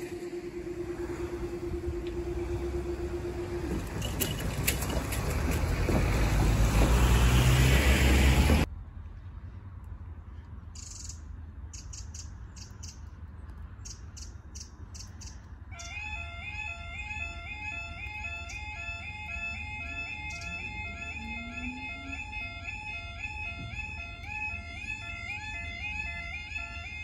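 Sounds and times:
car driving past: 0.0 - 8.7
level crossing warning alarm: 0.0 - 8.7, 15.0 - 27.0.

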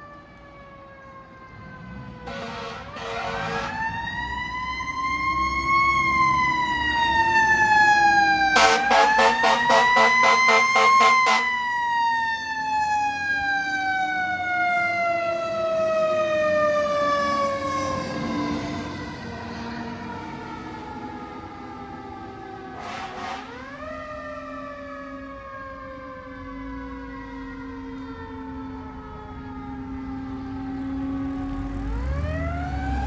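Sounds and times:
fire truck siren wailing: 0.0 - 33.0
pulsing horn blasts: 2.2 - 3.8, 8.6 - 11.6, 22.8 - 23.7.

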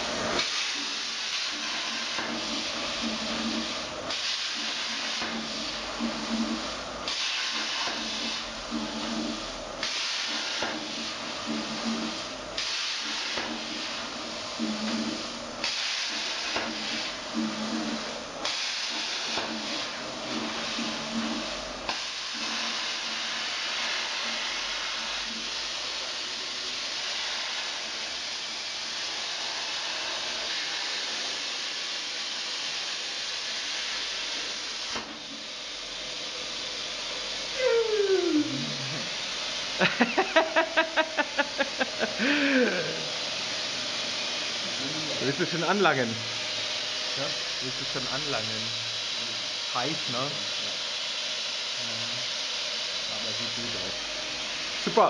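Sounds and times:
plasma torch hissing: 0.0 - 55.0.

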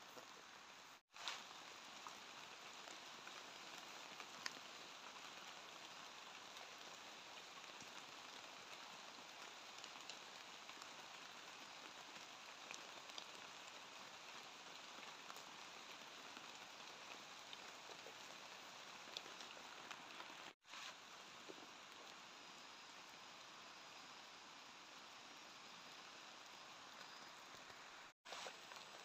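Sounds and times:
light rain hiss: 0.0 - 29.0
raindrops ticking: 1.2 - 20.6.

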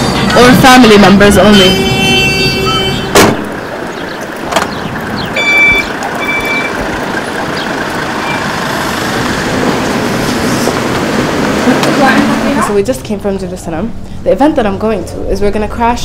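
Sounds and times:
street traffic noise: 0.0 - 16.0
short high electronic beeps: 5.4 - 6.8.

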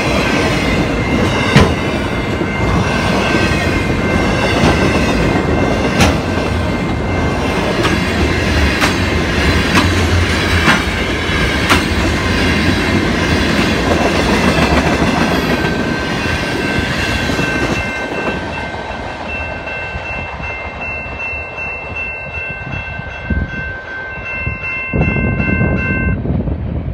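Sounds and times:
train wheels clacking over rail joints: 0.0 - 6.6, 7.5 - 18.5
crossing warning bell ringing: 0.0 - 26.4
low rumble of freight train: 0.0 - 26.9.

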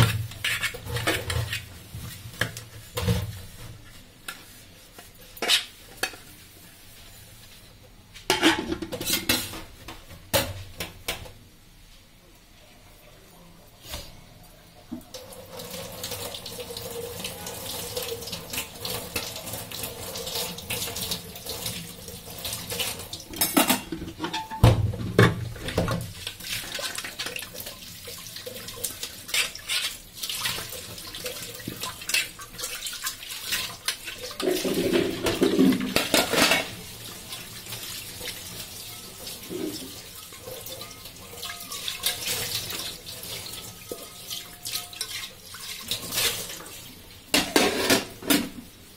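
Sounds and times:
tap water running into sink: 14.9 - 48.5
metal bowls knocking against sink: 23.3 - 26.0, 34.4 - 36.7.

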